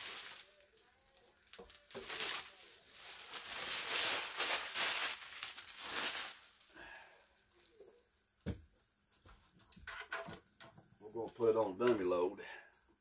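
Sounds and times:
bubble wrap crinkling: 0.0s - 7.0s.

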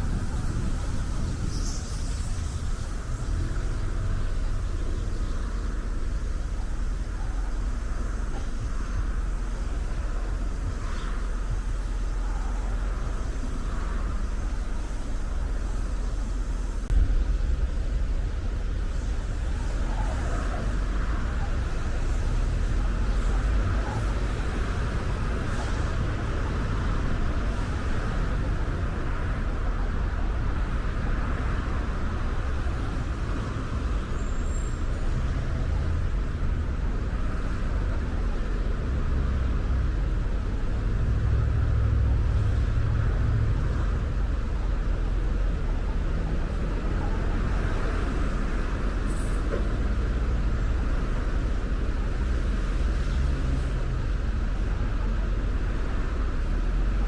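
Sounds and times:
car road noise rumble: 0.0s - 57.0s.

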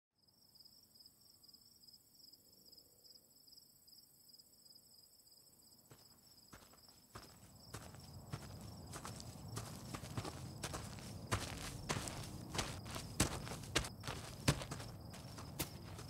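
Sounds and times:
crickets chirping: 0.2s - 16.0s
footsteps: 5.9s - 16.0s.

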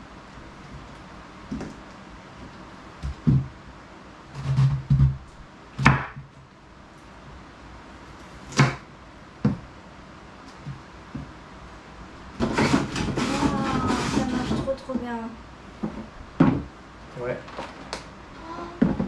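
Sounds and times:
knife cutting cabbage on board: 12.4s - 14.6s.

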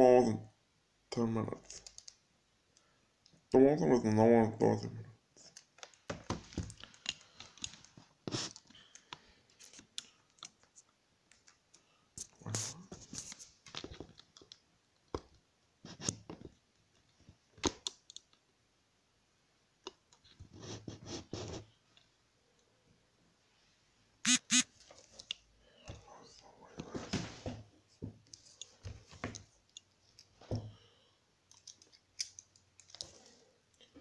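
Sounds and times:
scratchy bursts: 24.2s - 24.7s.

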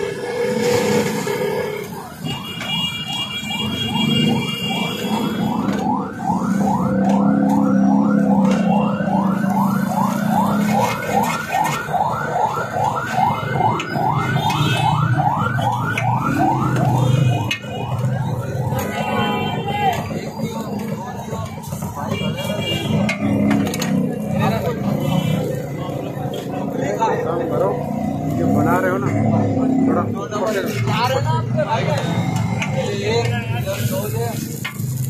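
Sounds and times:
electronic siren rising sweeps: 0.0s - 2.4s, 3.5s - 19.3s.

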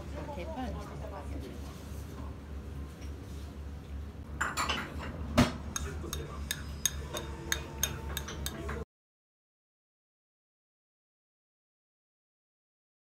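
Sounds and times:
utensils clinking on ceramic plate: 5.8s - 8.8s.

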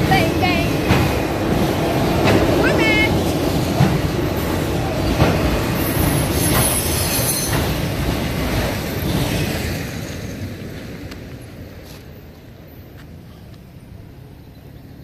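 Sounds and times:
freight cars rumbling and clattering: 0.0s - 15.0s
high wheel squeal: 5.8s - 7.8s.

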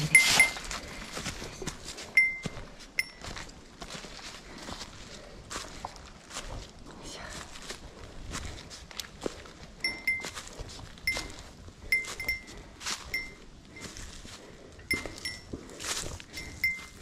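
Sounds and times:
small bell pinging: 0.0s - 0.6s, 2.2s - 3.2s, 9.8s - 10.4s, 11.9s - 12.5s, 13.1s - 13.4s, 14.9s - 15.5s, 16.4s - 17.0s
footsteps on dry leaves: 0.0s - 17.0s.

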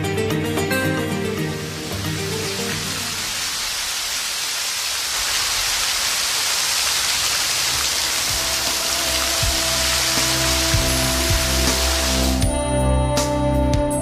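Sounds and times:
soft background music: 0.0s - 3.5s, 8.0s - 14.0s
fountain water splashing: 1.1s - 12.4s.

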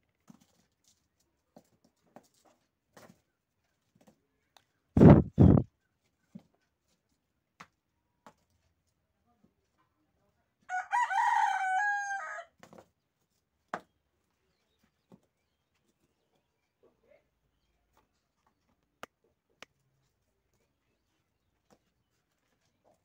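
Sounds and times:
rooster crowing: 10.7s - 12.5s.

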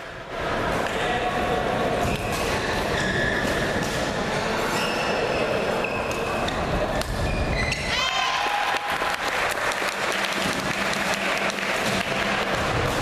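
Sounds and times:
crowded sports hall din: 0.0s - 13.0s
shoes squeaking on court: 2.0s - 7.9s.

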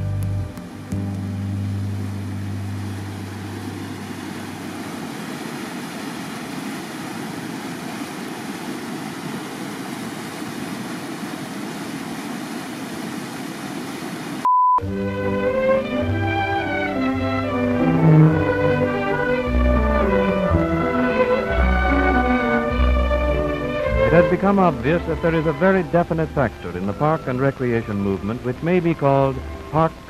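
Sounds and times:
water rushing over rocks: 0.7s - 14.4s.

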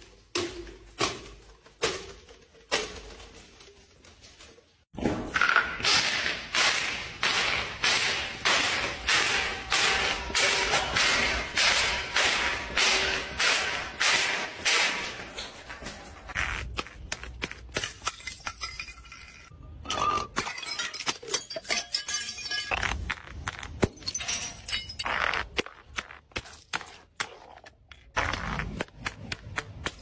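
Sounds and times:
glass bottle clinking on steps: 17.8s - 23.1s, 23.8s - 25.1s.

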